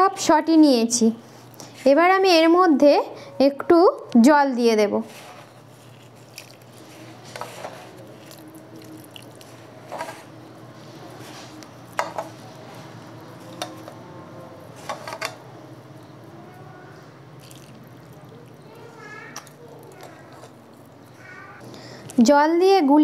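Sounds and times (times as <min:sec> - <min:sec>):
wet squishing of paste: 0:05.4 - 0:14.0, 0:17.4 - 0:21.4.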